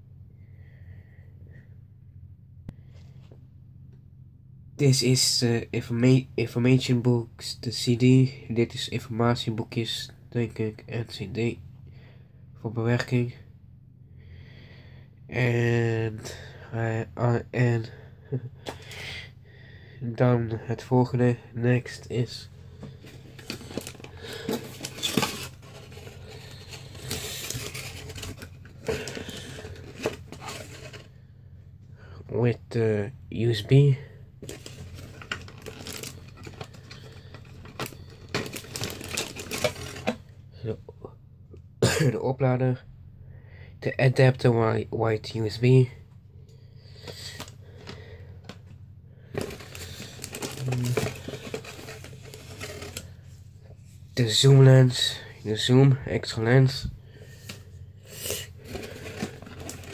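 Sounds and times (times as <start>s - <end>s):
packaging rustling and crinkling: 22.8s - 31.2s, 34.4s - 40.3s, 49.3s - 53.2s, 58.3s - 59.9s.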